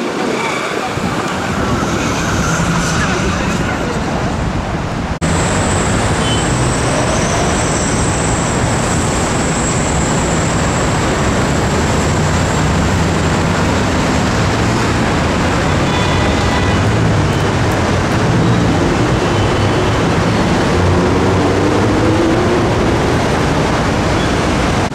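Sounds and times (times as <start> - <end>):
heavy road traffic: 0.0 - 24.9.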